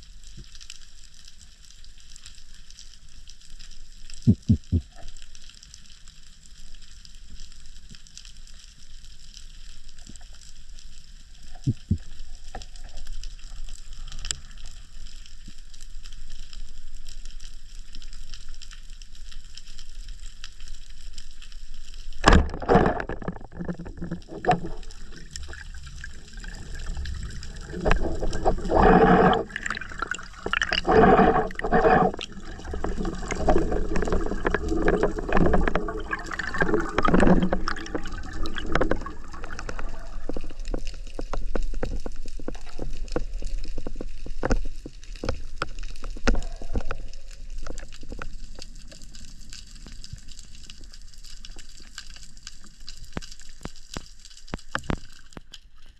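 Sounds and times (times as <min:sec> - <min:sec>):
gurgling rushing water: 0:22.2 - 0:49.2.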